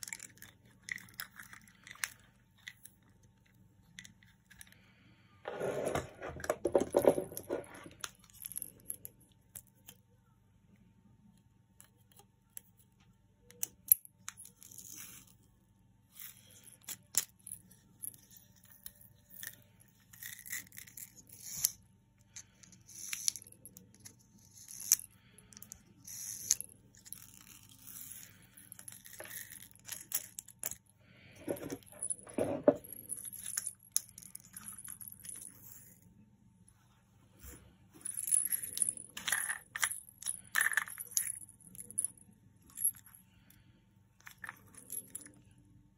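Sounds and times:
rustling and scraping: 5.4 - 8.0, 31.2 - 33.4.

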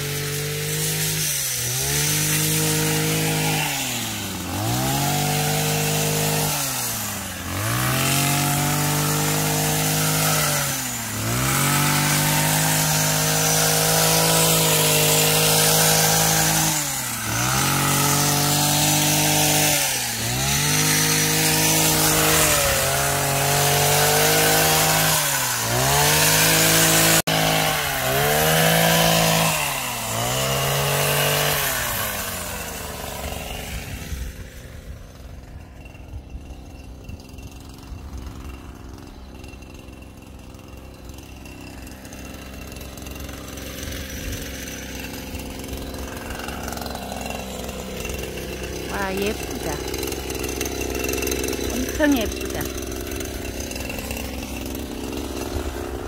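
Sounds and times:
petrol hedge trimmer revving: 0.0 - 56.0.

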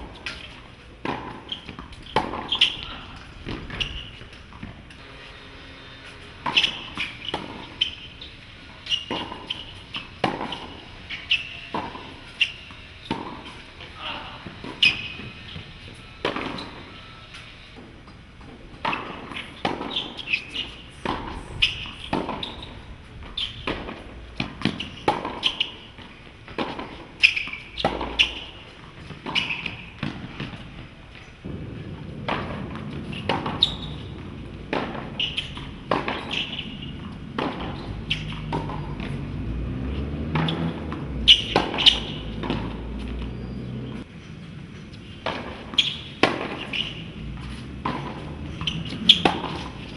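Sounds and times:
tennis ball struck and bouncing: 0.0 - 5.0, 6.4 - 16.9, 18.8 - 44.1, 44.7 - 49.9
low rumble: 31.4 - 36.0.

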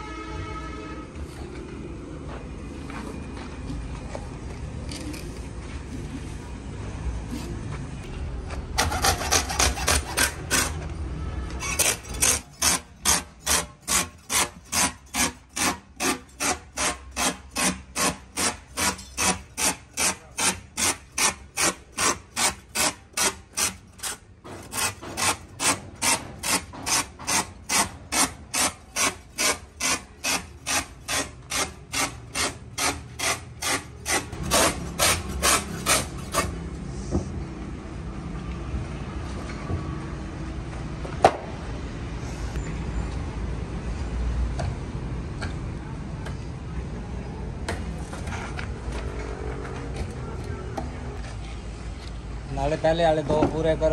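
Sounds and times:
rasp filing rubber: 8.8 - 10.9, 11.6 - 36.6.

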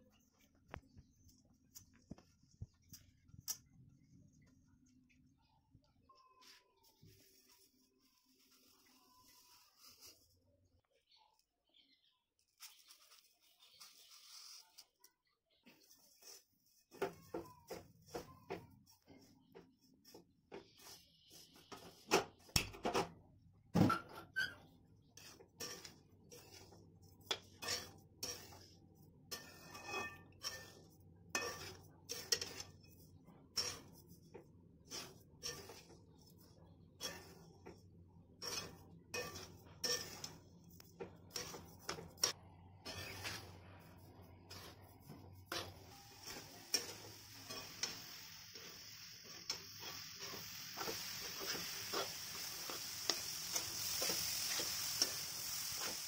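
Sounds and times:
metal spatula scraping wok: 12.7 - 14.7, 24.3 - 56.0
sizzling hiss: 45.5 - 56.0.

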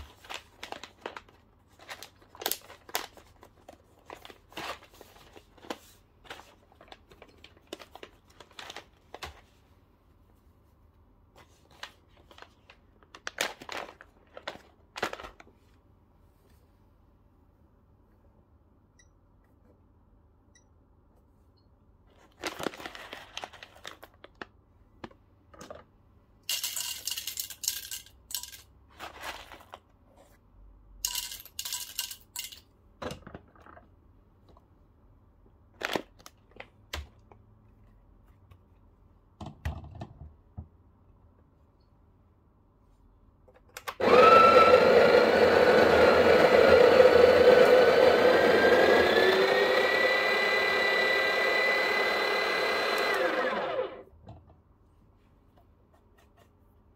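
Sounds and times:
paper bag rustling: 0.0 - 9.6, 11.4 - 15.6, 22.2 - 24.5, 28.9 - 29.9
coffee grinder grinding: 44.0 - 54.0.

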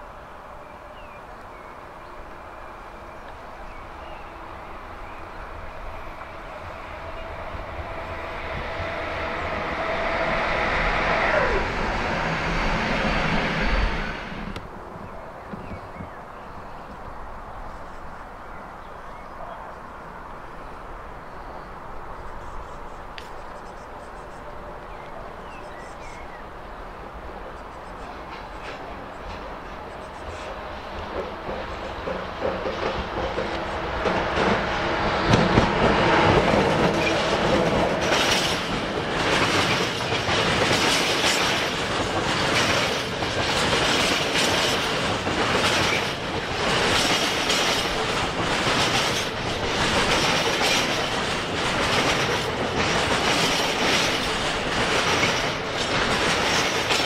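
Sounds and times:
electric locomotive rumble and whine: 0.0 - 57.0
small birds chirping: 20.6 - 26.5.

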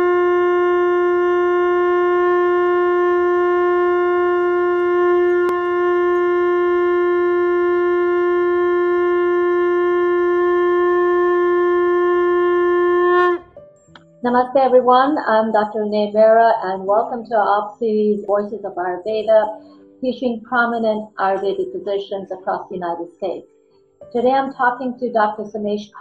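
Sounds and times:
conch shell blown: 0.0 - 14.2, 19.4 - 20.0.

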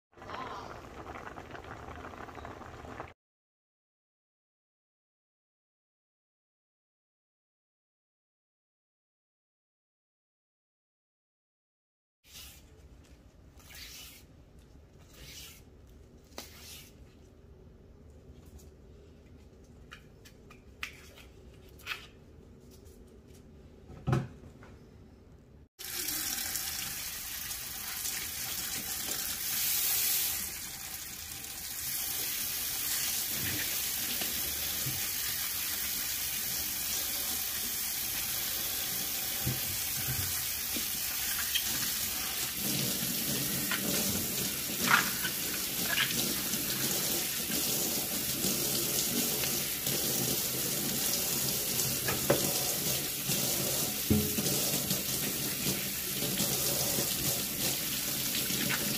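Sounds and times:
tap water streaming into sink: 50.9 - 58.9.

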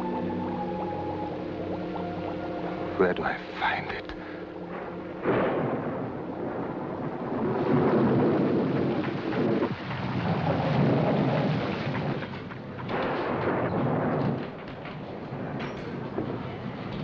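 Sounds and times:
steady rain: 0.0 - 17.0
rolling thunder: 4.5 - 17.0.

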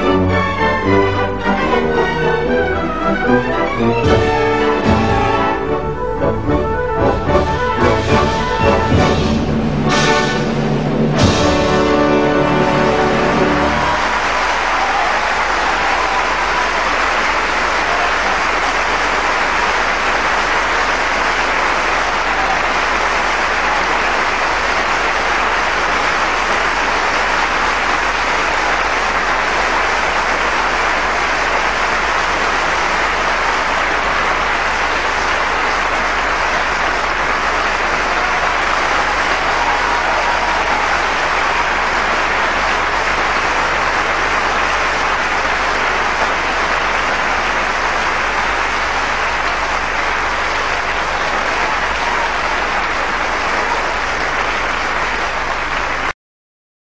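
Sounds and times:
large audience applauding: 0.0 - 56.2.

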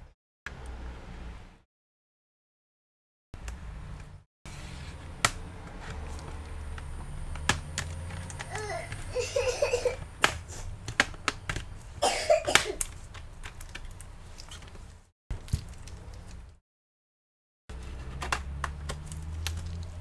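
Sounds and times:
child babbling: 8.5 - 10.0.

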